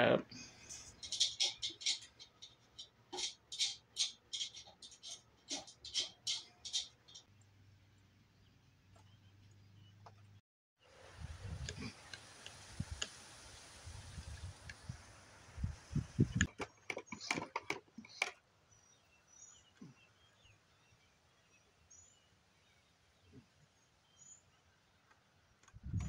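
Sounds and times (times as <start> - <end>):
small birds chirping: 0.0 - 10.4, 14.4 - 25.8
sharp knocks and clatters: 0.7 - 7.3, 16.4 - 18.4
steady hiss: 10.8 - 16.5.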